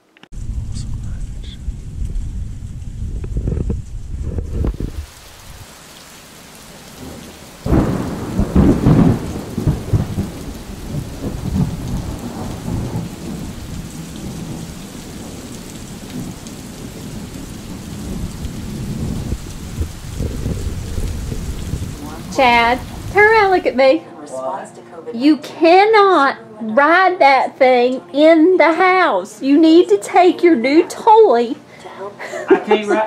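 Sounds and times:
steady falling rain: 0.1 - 24.6
thunder clap rumbling: 0.3 - 5.7, 6.9 - 23.9.

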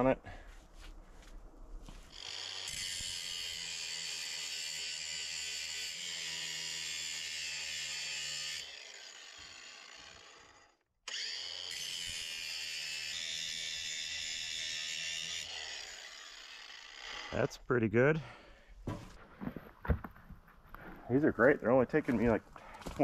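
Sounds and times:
angle grinder grinding steel: 2.1 - 17.5.

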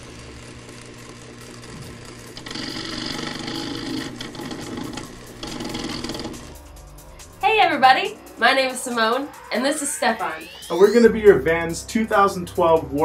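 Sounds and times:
whirring tone: 0.0 - 11.0
fast mechanical clatter: 0.2 - 6.6.

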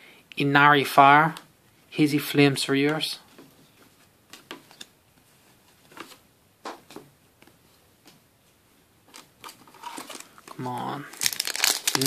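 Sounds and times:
cards tapping and rustling: 2.9 - 5.0.

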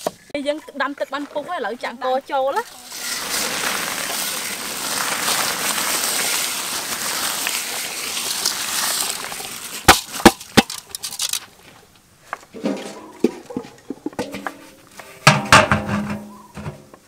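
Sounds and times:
rice grains pouring into water: 2.7 - 11.3.

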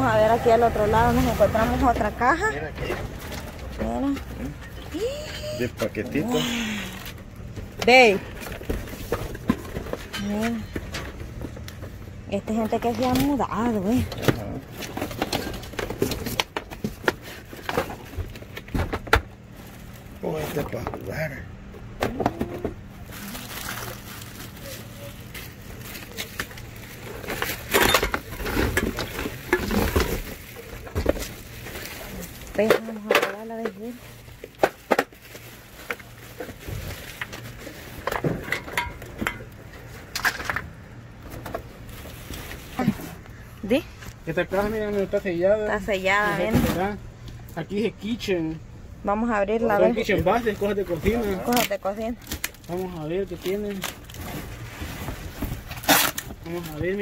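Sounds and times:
items knocking and rattling in box: 7.6 - 12.0, 12.6 - 21.1, 21.8 - 43.2, 50.1 - 57.0.

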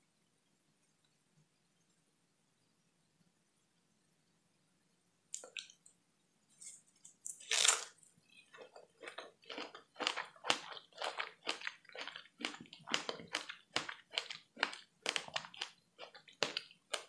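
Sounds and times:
chewing fruit: 8.3 - 17.0.

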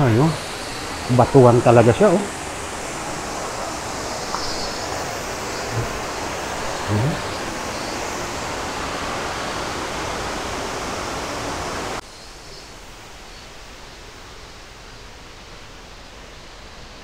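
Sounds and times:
flowing water rushing: 0.0 - 12.0.

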